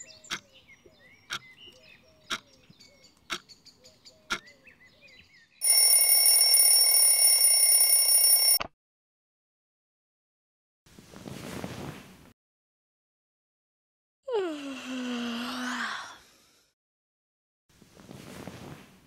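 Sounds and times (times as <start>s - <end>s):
birds chirping: 0.0s - 5.6s
bell alarm clock ringing: 5.6s - 8.6s.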